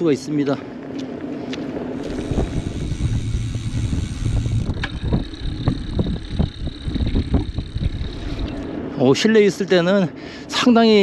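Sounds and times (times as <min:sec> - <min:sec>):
wind buffeting microphone: 0:01.6 - 0:09.0.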